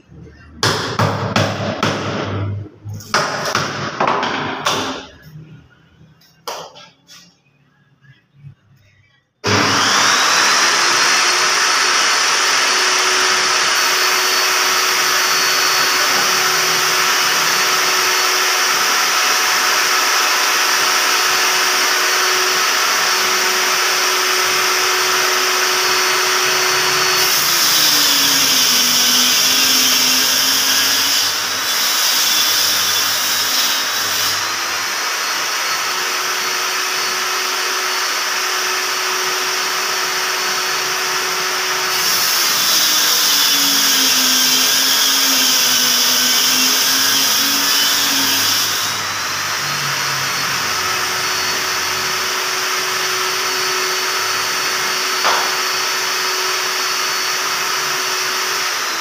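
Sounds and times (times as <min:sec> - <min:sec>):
saw cutting board: 0:09.4 - 0:59.0
table saw running: 0:09.4 - 0:59.0.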